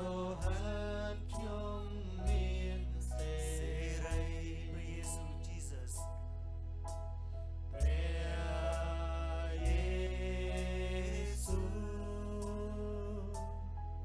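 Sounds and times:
deep bass: 0:00.0 - 0:14.0
people singing long notes: 0:07.8 - 0:13.4.

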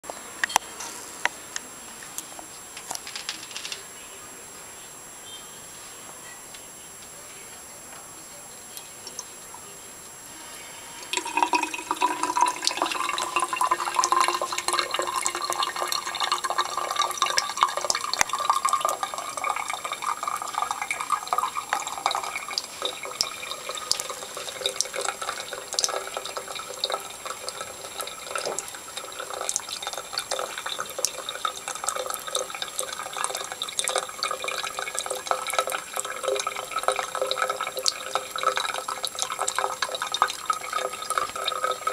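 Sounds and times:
tap water running: 0:10.9 - 0:41.9
water splashes and drips: 0:11.2 - 0:41.9.

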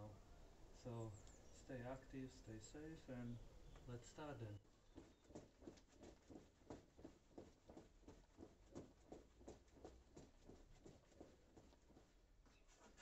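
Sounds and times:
soft footfalls on foam mats: 0:04.6 - 0:13.0.

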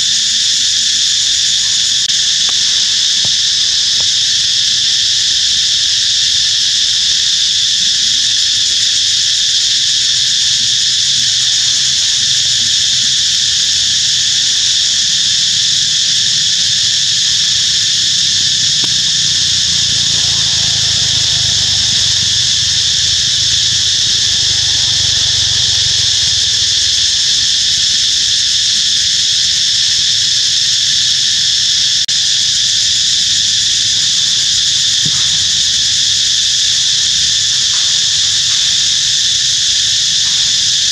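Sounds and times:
insect chorus shrill drone: 0:00.0 - 0:40.9.

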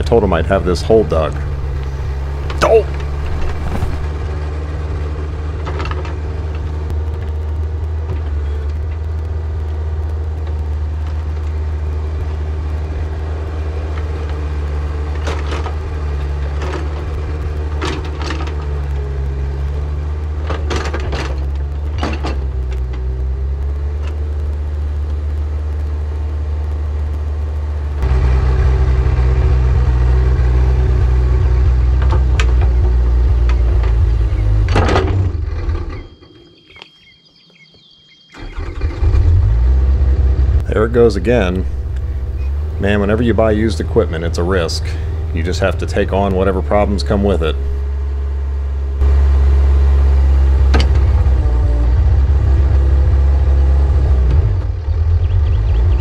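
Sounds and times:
excavator diesel engine running: 0:00.0 - 0:36.7, 0:38.4 - 0:56.0
hydraulic whine: 0:00.9 - 0:04.1, 0:40.6 - 0:54.6.

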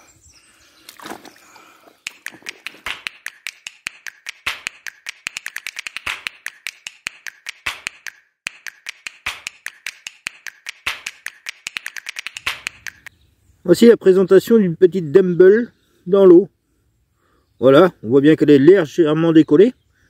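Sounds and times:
water slapping camera housing: 0:02.1 - 0:13.1.

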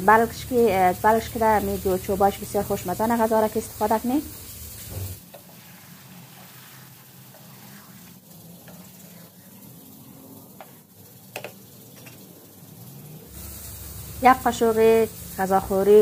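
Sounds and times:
food sizzling in oil: 0:00.0 - 0:16.0
spatula scraping a pan: 0:04.4 - 0:09.7.

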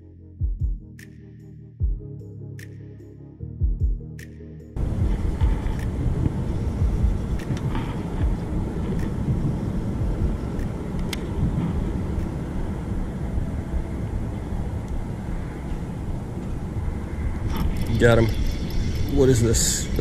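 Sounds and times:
road traffic rumble: 0:04.7 - 0:20.0.

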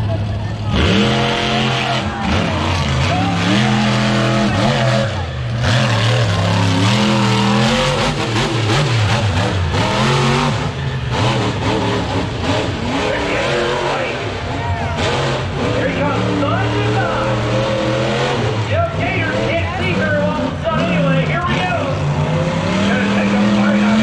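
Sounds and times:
monster truck engine revving: 0:00.0 - 0:24.0.

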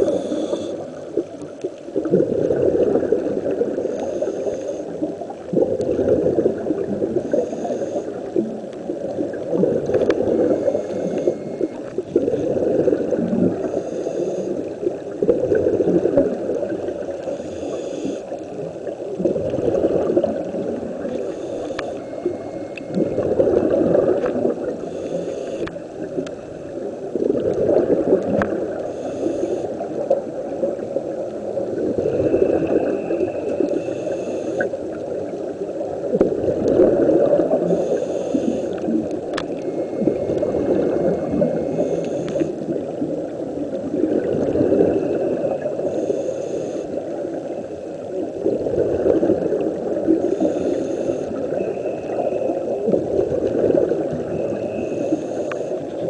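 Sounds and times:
regulator inhale hiss: 0:00.0 - 0:01.5, 0:03.6 - 0:05.6, 0:07.1 - 0:08.6, 0:09.8 - 0:15.1, 0:16.9 - 0:19.0, 0:20.3 - 0:26.8, 0:28.4 - 0:30.8, 0:31.6 - 0:35.8, 0:37.2 - 0:43.1, 0:44.5 - 0:47.9, 0:49.3 - 0:53.6, 0:54.2 - 0:56.0
exhaled bubbles rumbling: 0:00.0 - 0:04.3, 0:04.9 - 0:13.9, 0:14.6 - 0:17.4, 0:18.4 - 0:25.0, 0:25.6 - 0:46.0, 0:47.0 - 0:56.0.

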